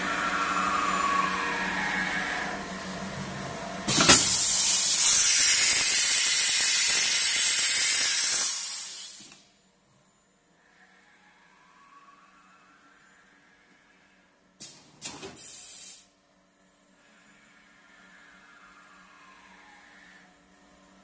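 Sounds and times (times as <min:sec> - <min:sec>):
machine humming: 0:00.0 - 0:09.0, 0:16.6 - 0:21.0
compressed air hiss: 0:03.9 - 0:09.3, 0:14.6 - 0:16.1.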